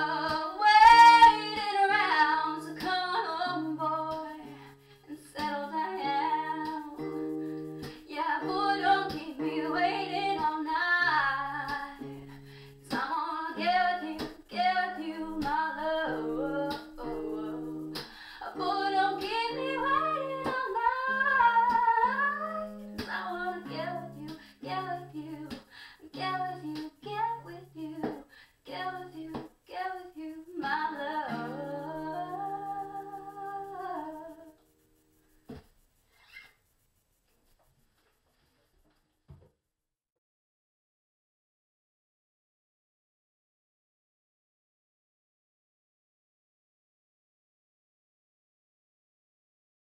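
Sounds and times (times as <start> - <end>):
woman singing: 0.0 - 7.4, 8.0 - 12.2, 12.8 - 34.6
strummed acoustic guitar: 0.0 - 28.2, 30.6 - 34.2.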